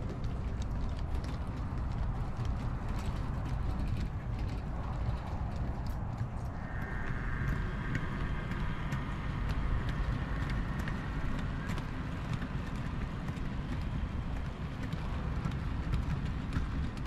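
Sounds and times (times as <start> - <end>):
sharp clicks of wheels: 0.0 - 17.0
train rumbling along track: 0.0 - 17.0.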